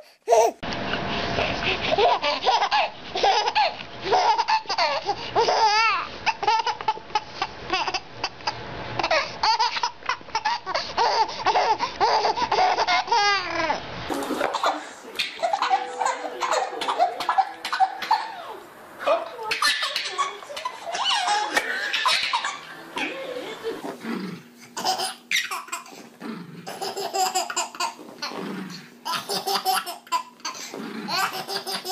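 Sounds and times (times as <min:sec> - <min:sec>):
baby laughing and squealing: 0:00.3 - 0:00.6, 0:01.9 - 0:08.1, 0:09.0 - 0:13.8, 0:14.5 - 0:18.6, 0:19.4 - 0:24.0, 0:24.8 - 0:25.9.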